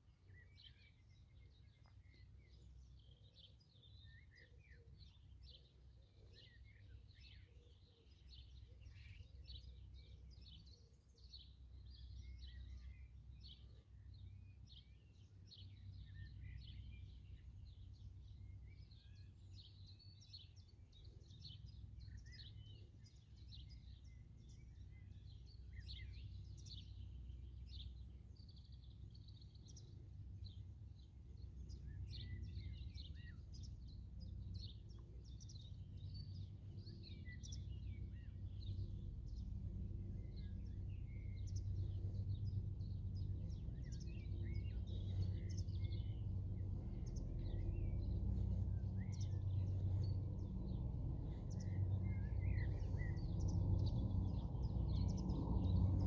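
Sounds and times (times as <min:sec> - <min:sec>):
small birds chirping: 0:00.0 - 0:56.0
helicopter rotor drone: 0:38.8 - 0:56.0.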